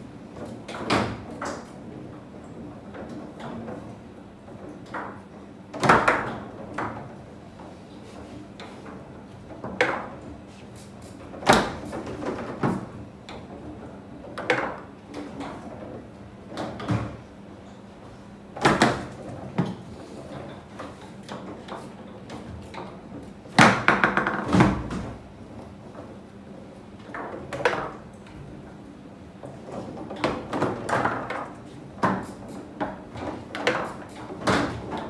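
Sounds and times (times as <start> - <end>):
foosball being struck: 23.6 - 25.0.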